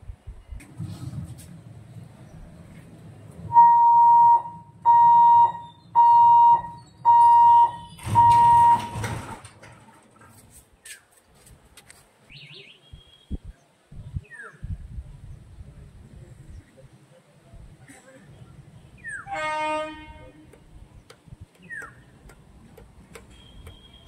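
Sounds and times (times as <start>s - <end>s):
level-crossing buzzer beeping: 3.5s - 9.1s.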